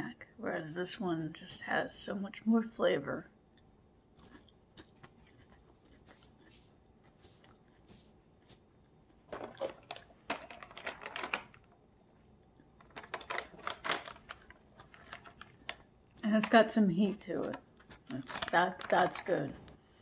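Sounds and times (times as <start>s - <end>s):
plastic snack bag rustling: 9.3s - 11.8s, 12.7s - 19.5s.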